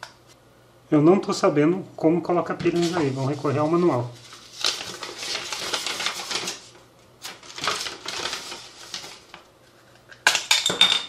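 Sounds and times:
paper rustling: 0:02.6 - 0:09.5.

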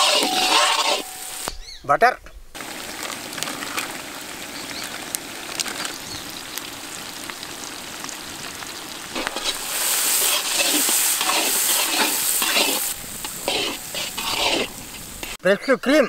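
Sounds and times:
onions frying in oil: 0:02.6 - 0:15.4.

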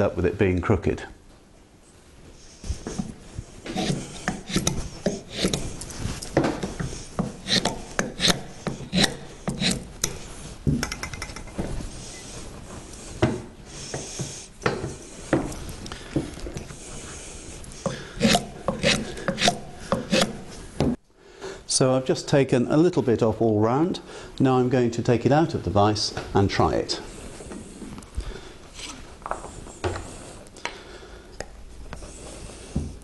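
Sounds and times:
hand tool shaving wood: 0:03.6 - 0:05.7, 0:06.6 - 0:10.2, 0:17.8 - 0:20.5.

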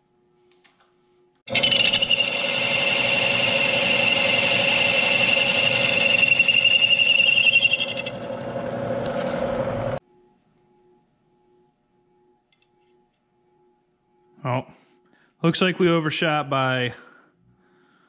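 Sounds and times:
milling machine cutting metal: 0:01.5 - 0:10.0.

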